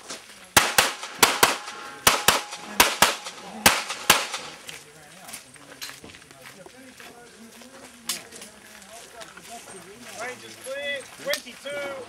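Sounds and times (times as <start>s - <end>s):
semi-automatic pistol shots: 0.6s - 4.7s.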